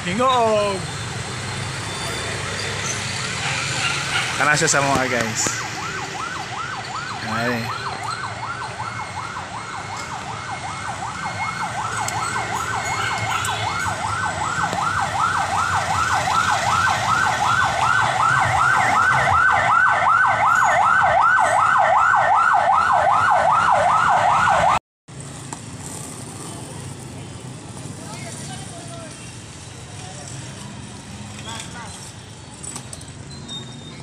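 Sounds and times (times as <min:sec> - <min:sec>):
emergency siren yelping: 0:03.2 - 0:24.8.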